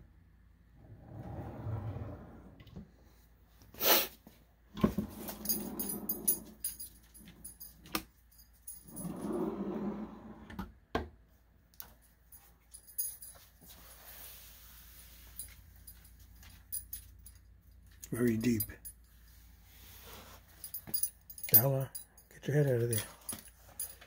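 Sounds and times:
wooden drawers sliding and knocking: 4.8s - 6.5s.

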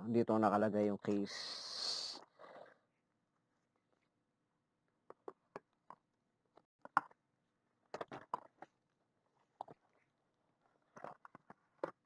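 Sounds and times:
plastic taps clicks and crinkles: 5.0s - 7.2s, 7.8s - 8.8s, 10.9s - 12.0s.

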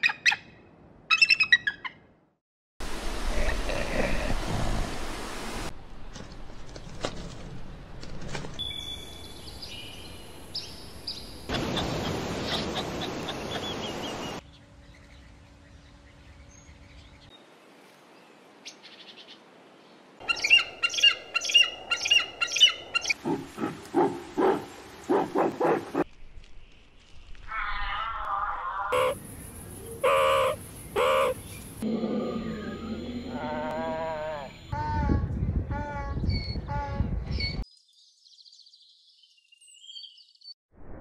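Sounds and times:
bird chirps and calls: 20.2s - 23.2s, 28.9s - 31.8s.

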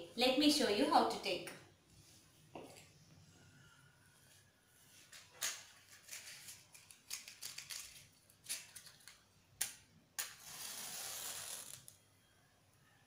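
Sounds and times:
matchbox clicks and rustles: 5.4s - 12.0s
match striking: 9.6s - 12.0s
match flame hissing: 10.2s - 12.0s.

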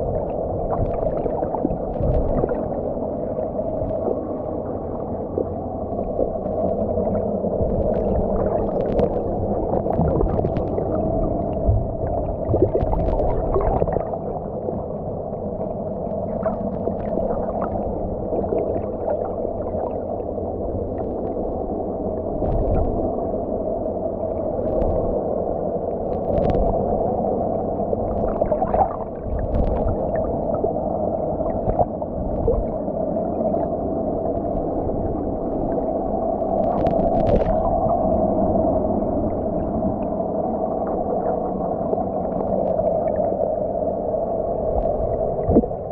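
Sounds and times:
low underwater hum: 0.0s - 45.9s
faint underwater clicks and knocks: 0.7s - 2.7s, 5.2s - 14.2s, 22.4s - 23.1s, 24.6s - 25.2s, 25.9s - 27.0s, 28.1s - 30.6s, 31.4s - 32.8s, 36.5s - 37.8s, 44.1s - 45.9s.

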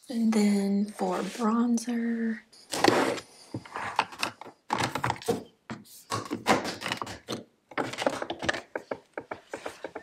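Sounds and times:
plastic compacts clacking: 6.1s - 10.0s.

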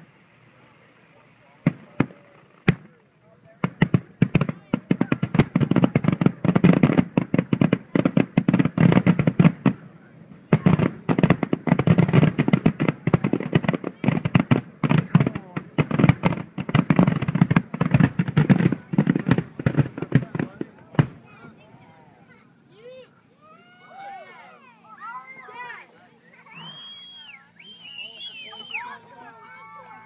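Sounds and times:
fireworks bursting: 0.0s - 23.1s.

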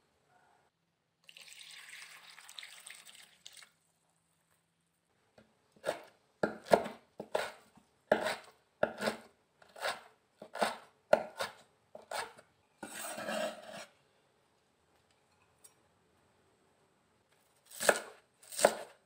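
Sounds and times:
cleaver chopping on wooden board: 5.9s - 7.5s
cleaver scraping across board: 6.8s - 13.9s.

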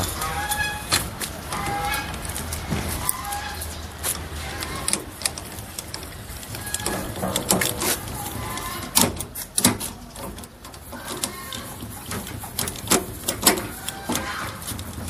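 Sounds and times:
mechanical clicks and knocks: 0.0s - 15.0s.

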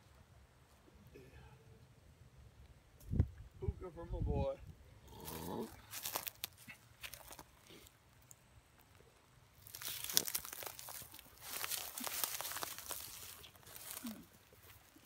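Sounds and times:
rustling in dry leaves and grass: 5.0s - 15.0s.

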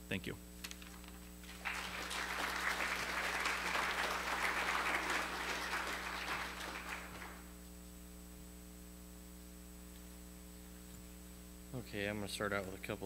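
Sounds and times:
steady hum: 0.0s - 13.0s
congregation applauding: 1.4s - 7.6s.

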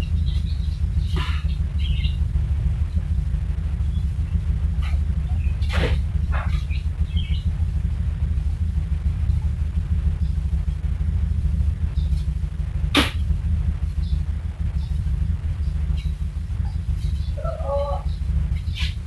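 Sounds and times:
steady low rumble: 0.0s - 19.0s
broom sweeping tiled floor: 18.5s - 19.0s.

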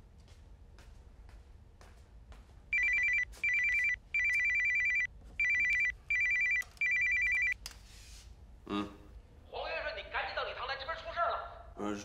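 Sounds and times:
electronic telephone ringtone: 2.8s - 7.6s.

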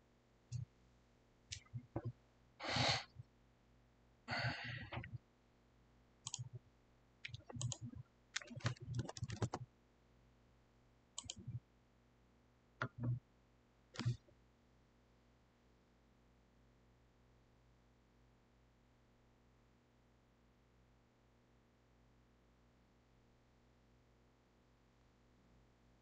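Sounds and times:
faint low electrical hum: 0.0s - 26.0s
breathy puffs: 2.6s - 3.2s, 4.3s - 5.2s
mouse and keyboard clicks: 6.3s - 6.6s, 7.3s - 9.6s, 11.2s - 11.6s, 12.8s - 13.2s, 14.0s - 14.3s.

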